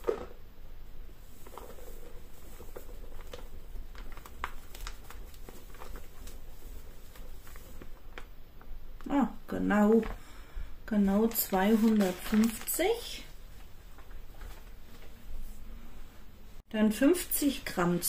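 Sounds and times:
flour bag rustling and crinkling: 0:01.1 - 0:09.1, 0:10.9 - 0:15.5.

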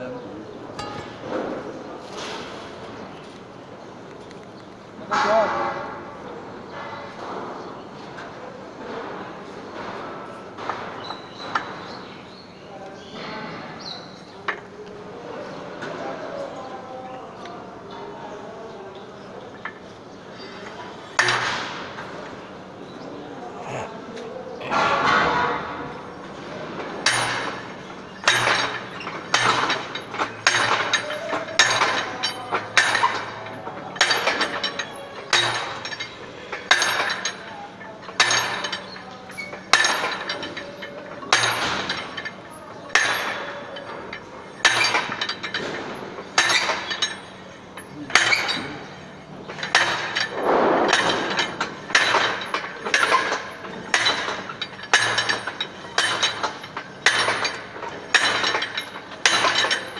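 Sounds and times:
drive hammer clanking on anvil: 0:00.8 - 0:01.6, 0:21.2 - 0:22.0, 0:27.0 - 0:59.9.

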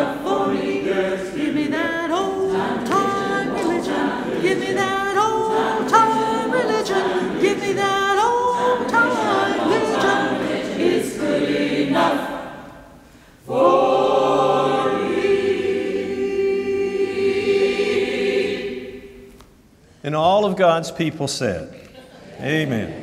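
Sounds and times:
choir singing unaccompanied: 0:00.0 - 0:19.3.

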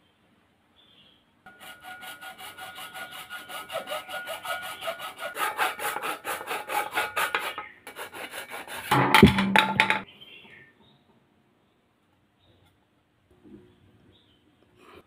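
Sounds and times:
hacksaw cutting plastic: 0:01.5 - 0:09.0.

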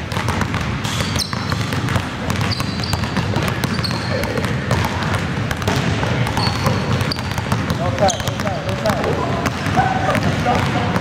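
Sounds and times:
basketballs bouncing on hardwood floor: 0:00.0 - 0:11.0
sneaker squeaks: 0:00.0 - 0:11.0.

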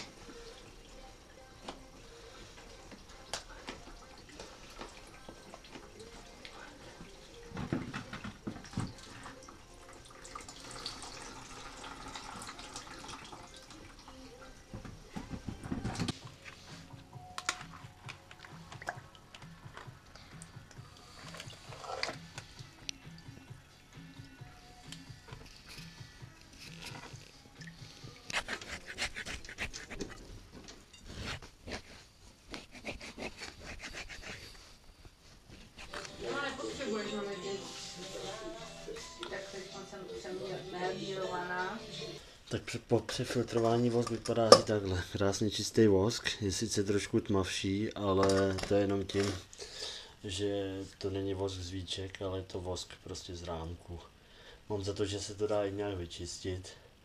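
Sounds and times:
liquid dripping into bucket: 0:17.4 - 0:23.5, 0:26.7 - 0:28.3
knife scraping wax: 0:28.2 - 0:30.2, 0:31.0 - 0:34.6.

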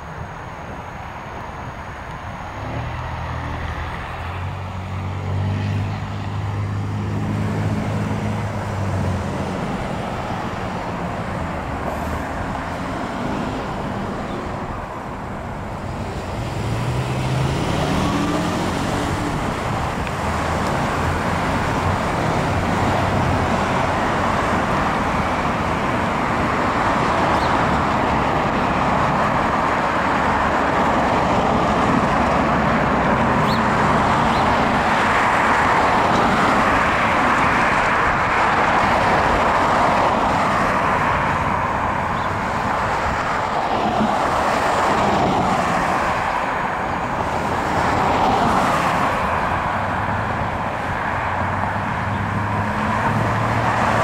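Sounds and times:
passing cars rushing: 0:00.0 - 0:54.0
vehicle accelerating away: 0:16.0 - 0:24.4.

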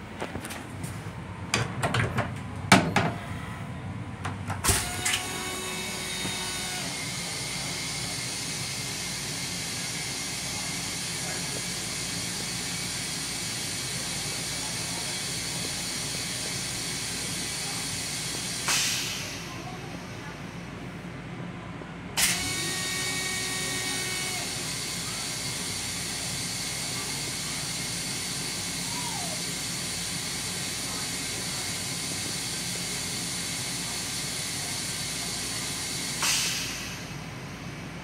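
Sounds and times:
toilet flush rushing hiss: 0:22.2 - 0:37.3.

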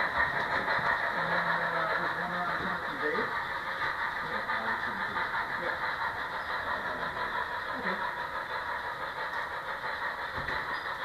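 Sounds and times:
model train wheels rolling on rails: 0:00.0 - 0:11.0.

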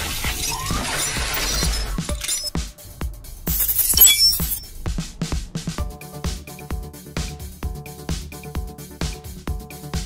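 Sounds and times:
electronic music with steady beat: 0:02.0 - 0:10.0.

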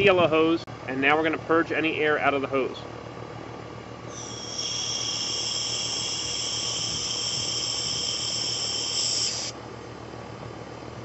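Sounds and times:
condenser unit humming: 0:00.0 - 0:11.0
high whistling gas hiss from hose: 0:04.1 - 0:09.6.

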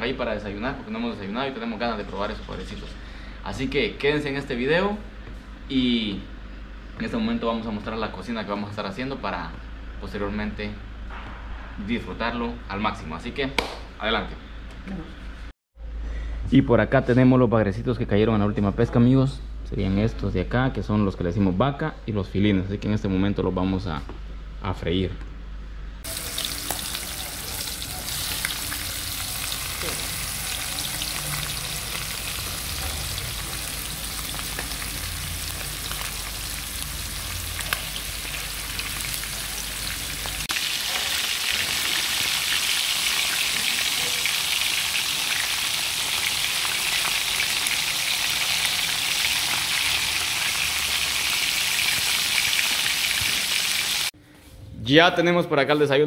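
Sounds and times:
fish sizzling in hot oil: 0:26.0 - 0:54.1.

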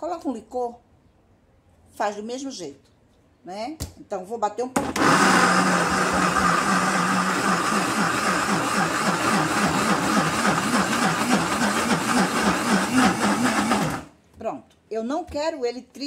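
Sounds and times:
blender motor chopping: 0:04.8 - 0:14.1.

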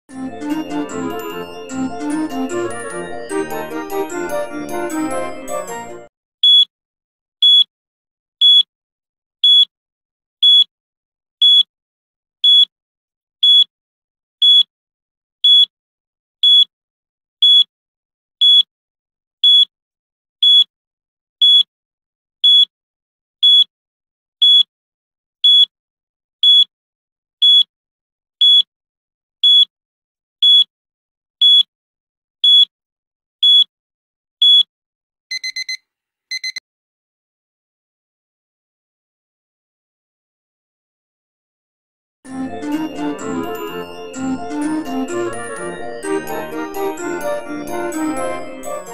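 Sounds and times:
timer beeps: 0:06.4 - 0:06.7, 0:07.4 - 0:07.7, 0:08.4 - 0:08.7, 0:09.4 - 0:09.7, 0:10.4 - 0:10.7, 0:11.4 - 0:11.7, 0:12.4 - 0:12.7, 0:13.4 - 0:13.7, 0:14.4 - 0:14.7, 0:15.4 - 0:15.7, 0:16.4 - 0:16.7, 0:17.4 - 0:17.7, 0:18.4 - 0:18.7, 0:19.4 - 0:19.7, 0:20.4 - 0:20.7, 0:21.4 - 0:21.7, 0:22.4 - 0:22.7, 0:23.4 - 0:23.7, 0:24.4 - 0:24.7, 0:25.4 - 0:25.7, 0:26.4 - 0:26.7, 0:27.4 - 0:27.7, 0:28.4 - 0:28.7, 0:29.4 - 0:29.7, 0:30.4 - 0:30.7, 0:31.4 - 0:31.7, 0:32.4 - 0:32.7, 0:33.4 - 0:33.7, 0:34.4 - 0:34.7, 0:35.3 - 0:36.6.

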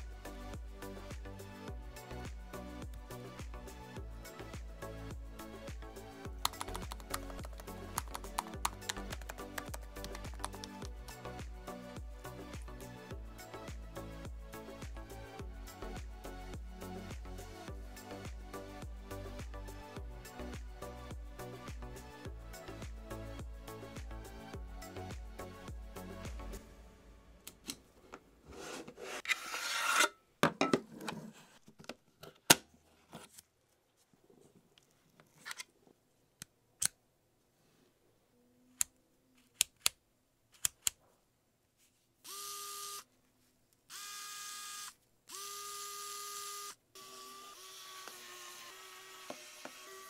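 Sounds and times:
electric screwdriver motor whirring: 0:42.2 - 0:43.0, 0:43.9 - 0:50.0.

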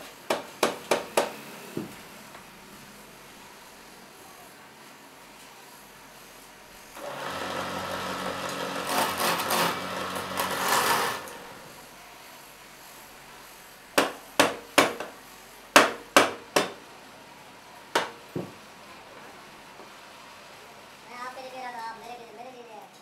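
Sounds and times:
wood lathe running: 0:07.0 - 0:11.9.

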